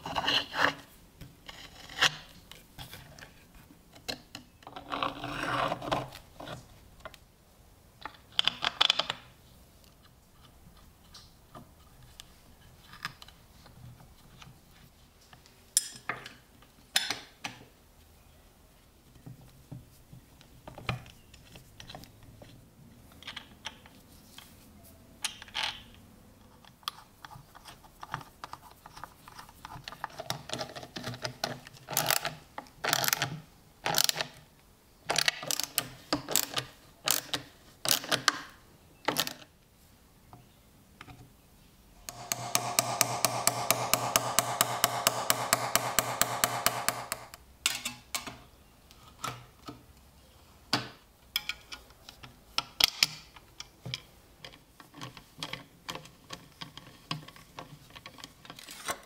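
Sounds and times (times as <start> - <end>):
socket wrench ratcheting: 42.1 - 47.4
metal and wood parts clicking: 42.1 - 48.4.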